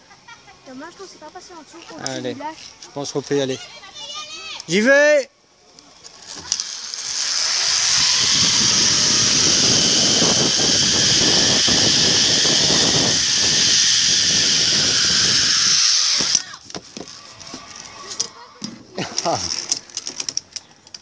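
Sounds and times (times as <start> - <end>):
pulley whirring on cable: 5.9 - 18.4
wind noise on microphone: 7.7 - 16.4.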